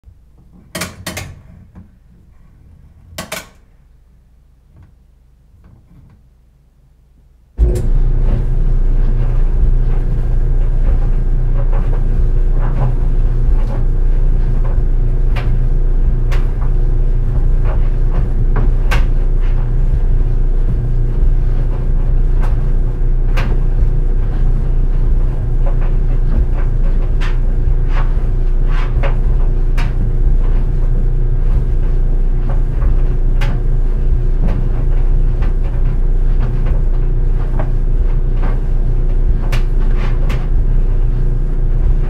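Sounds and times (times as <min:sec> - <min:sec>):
dryer drum rumbling: 0:00.1 - 0:06.3, 0:07.6 - 0:42.0
dryer motor hum: 0:00.1 - 0:06.3, 0:07.6 - 0:42.0
clicks and knocks: 0:00.4 - 0:02.0, 0:03.1 - 0:03.6.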